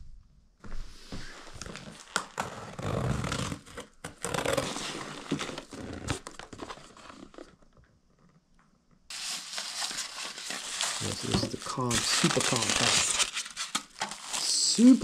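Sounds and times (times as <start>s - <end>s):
plastic packaging crinkling: 9.1s - 15.0s.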